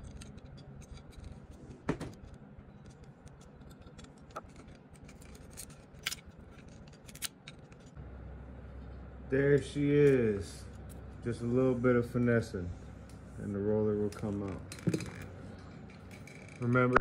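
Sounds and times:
metal pick clicking and scraping: 0.0 - 8.0.

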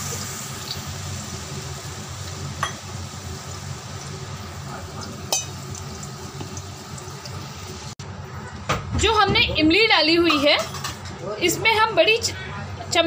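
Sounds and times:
paste sizzling in hot oil: 0.0 - 8.0.

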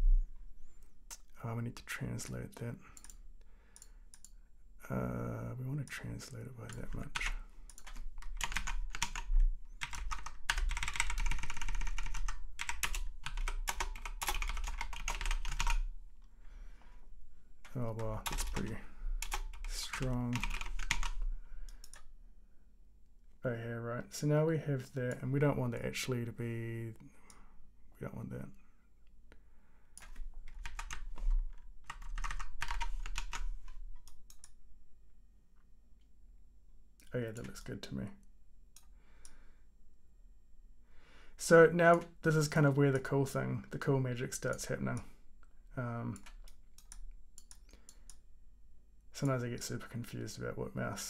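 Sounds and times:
typing on computer keyboard: 6.7 - 15.9, 17.6 - 21.2, 30.0 - 34.6, 46.1 - 48.2.

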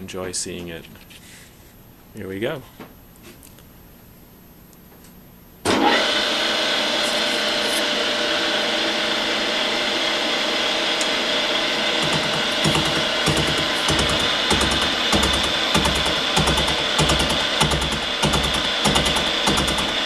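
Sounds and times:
milling machine cutting metal: 5.7 - 20.0.

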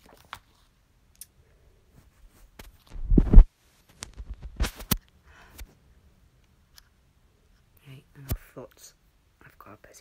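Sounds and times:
muffled low thump: 3.0 - 3.5.

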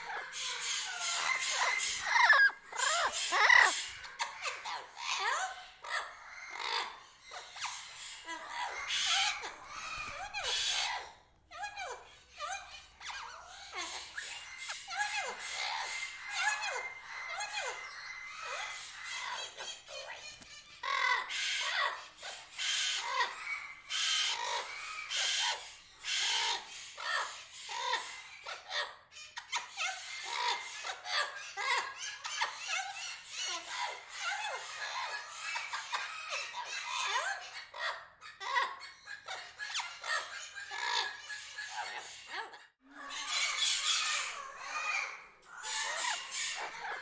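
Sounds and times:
birds chirping and chattering: 0.0 - 47.0
harsh bird squawks: 0.0 - 47.0.

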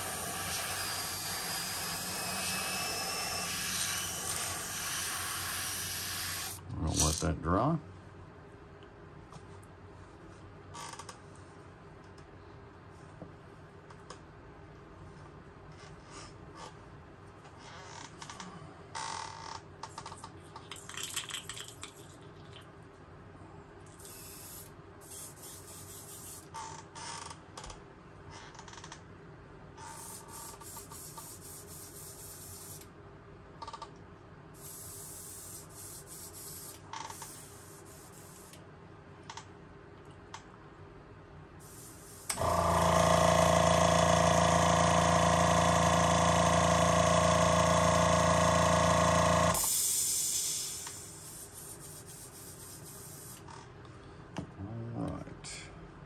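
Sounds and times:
airbrush hissing: 0.0 - 6.6, 24.0 - 26.4, 29.9 - 32.8, 34.6 - 38.6, 41.6 - 42.5, 49.5 - 53.4
motor whirring with hum: 42.2 - 49.7.

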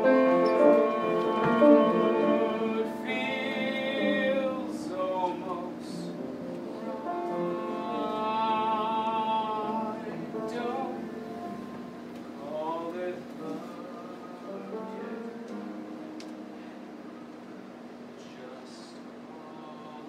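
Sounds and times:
instrumental accompaniment: 0.0 - 4.8
person singing: 0.0 - 6.2, 6.8 - 11.6.

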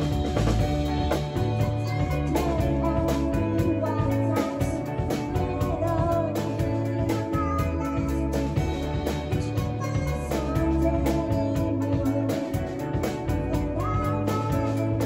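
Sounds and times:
drums: 0.0 - 15.0
rock guitar: 0.0 - 15.0.

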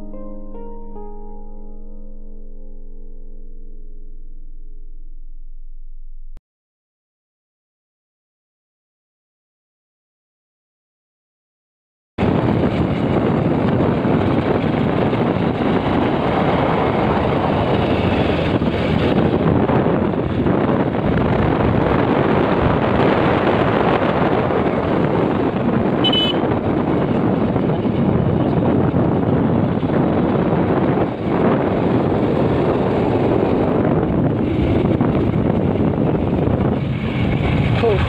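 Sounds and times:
road noise: 12.2 - 38.0
wind rushing over microphone: 12.2 - 38.0.

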